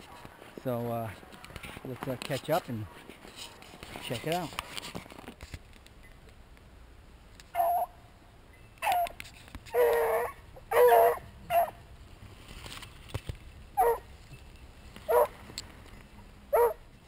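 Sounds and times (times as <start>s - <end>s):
dog barking and baying: 7.6s - 7.9s, 8.8s - 11.8s, 13.8s - 14.0s, 15.1s - 15.3s, 16.5s - 16.8s.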